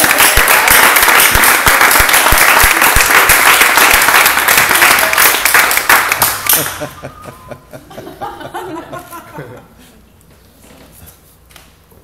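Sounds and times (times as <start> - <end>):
crowd applauding: 0.0 - 7.1.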